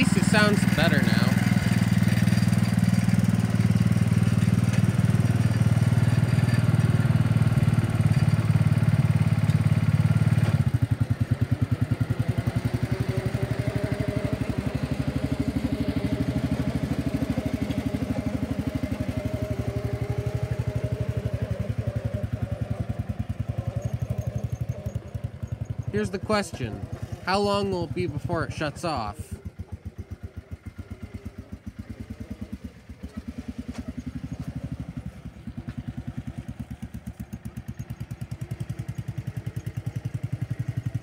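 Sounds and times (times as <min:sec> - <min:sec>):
garden tractor engine running: 0:00.0 - 0:41.0.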